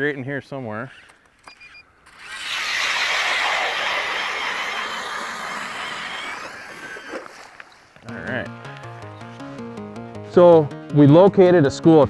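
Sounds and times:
power ice auger grinding ice: 2.1 - 7.5.

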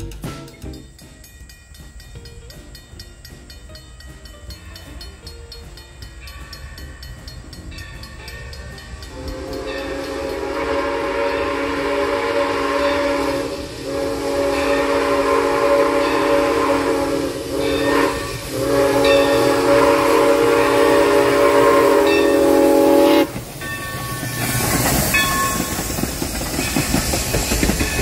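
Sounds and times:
crossing bell ringing: 0.0 - 26.0, 26.6 - 28.0
steam hiss: 0.0 - 28.0
steam locomotive whistle: 8.6 - 28.0.

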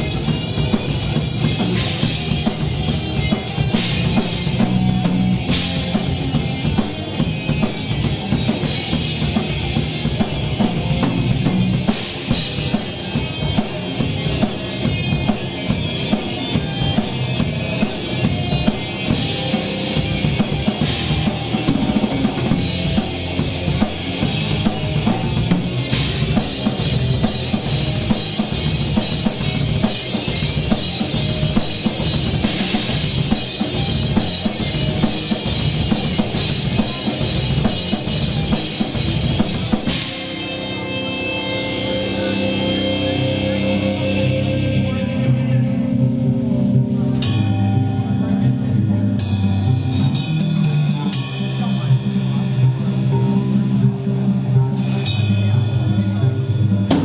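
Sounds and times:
drum kit hit hard and fast: 0.0 - 40.4
live rock band playing: 0.0 - 57.0.

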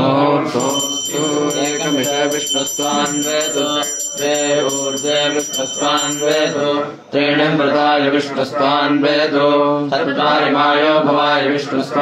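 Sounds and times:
people chanting: 0.0 - 12.0
bell ringing: 0.6 - 7.1.

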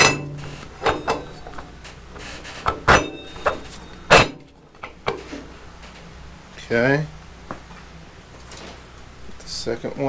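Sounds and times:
sharp metal knocks and clinks: 0.0 - 1.7, 2.6 - 5.2.

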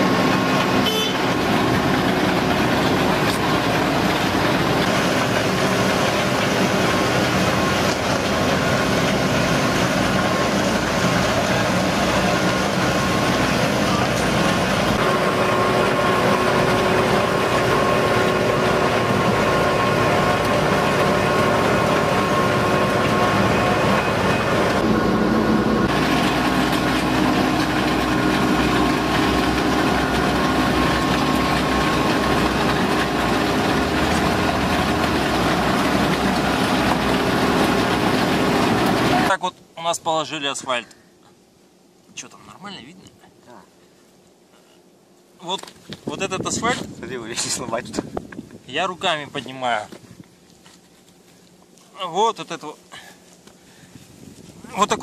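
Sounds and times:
machinery whine: 0.0 - 39.4
engine rumble: 0.0 - 55.0.

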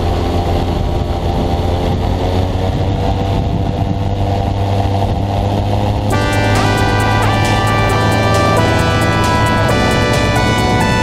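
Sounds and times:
aircraft engine and propeller drone: 0.0 - 11.0.

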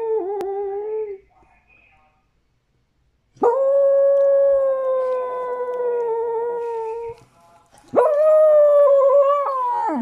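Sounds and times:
dog howling: 8.0 - 10.0.

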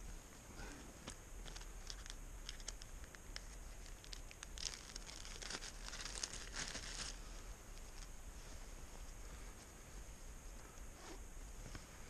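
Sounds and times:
rustling of gear and clothing: 0.0 - 12.0.

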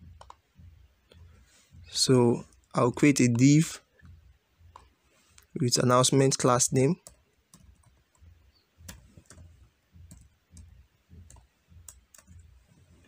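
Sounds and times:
keyboard keystroke clicks: 0.1 - 0.4, 7.0 - 12.6.

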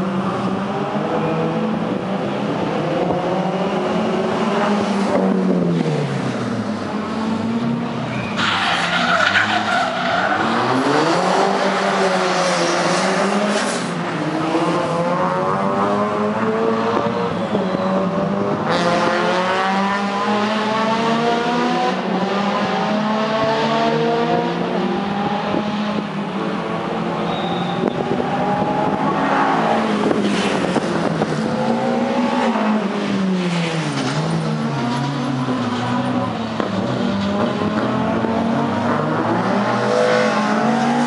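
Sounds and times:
rally car engine revving: 0.1 - 41.0
tyres skidding and squealing: 7.6 - 14.2, 17.1 - 18.2, 27.1 - 38.0.

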